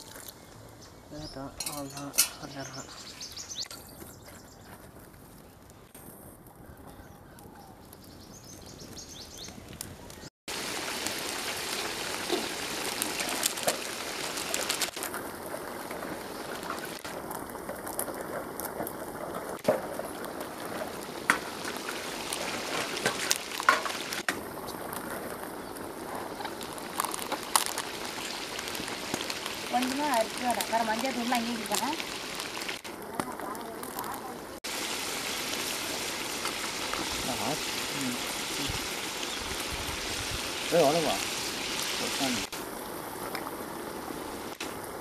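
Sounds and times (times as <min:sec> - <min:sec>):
chicken sizzling in a pot: 0:10.5 - 0:45.0.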